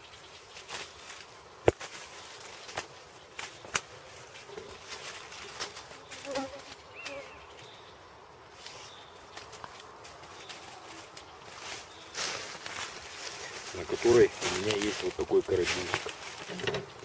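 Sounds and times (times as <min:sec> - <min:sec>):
insect buzzing: 0:02.4 - 0:12.5.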